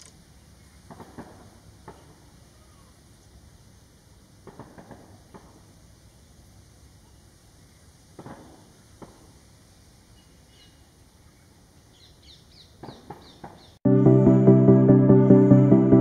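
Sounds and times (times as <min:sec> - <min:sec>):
faint outdoor ambience: 0:00.0 - 0:16.0
bird chirping: 0:10.1 - 0:13.8.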